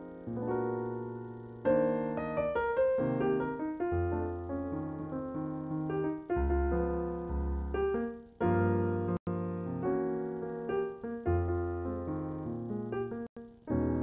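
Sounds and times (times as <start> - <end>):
jazz piano chords: 0.0 - 14.0
low bass notes: 4.0 - 9.2.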